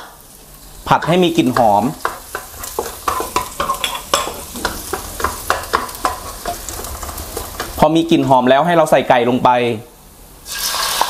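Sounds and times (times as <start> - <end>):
garlic sizzling in oil: 0.0 - 8.8, 10.4 - 11.0
spatula scraping and tapping wok: 0.9 - 8.3.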